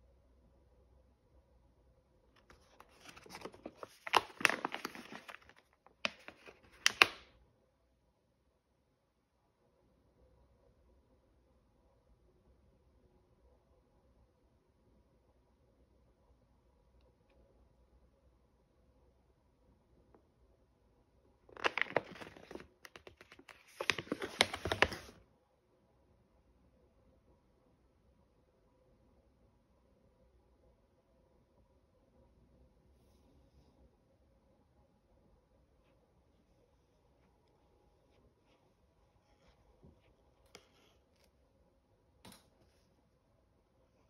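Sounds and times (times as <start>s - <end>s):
plastic pouch crinkling: 2.4s - 7.2s, 21.5s - 25.2s.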